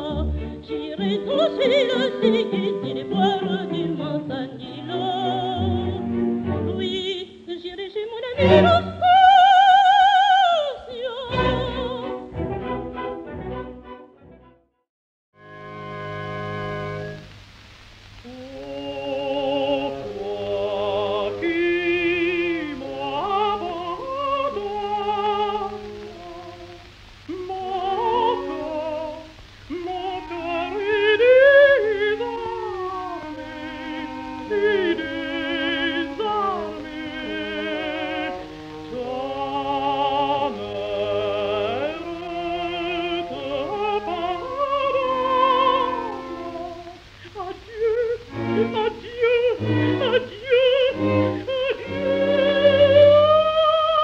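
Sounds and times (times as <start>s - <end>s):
woman singing operatic aria: 0.0s - 12.8s, 18.2s - 54.0s.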